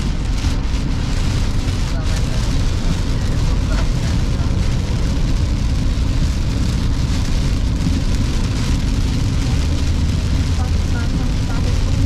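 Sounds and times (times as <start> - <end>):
car rumbling on wet road: 0.0 - 12.0
heavy rain on car windshield: 0.0 - 12.0.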